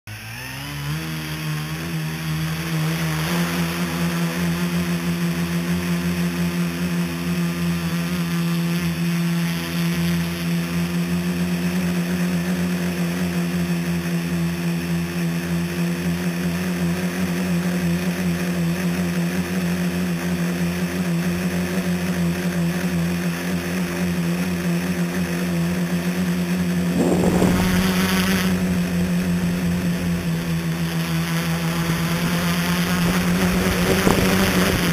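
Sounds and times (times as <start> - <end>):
drone motors buzzing: 0.1 - 34.9
brief louder rush: 26.9 - 32.0.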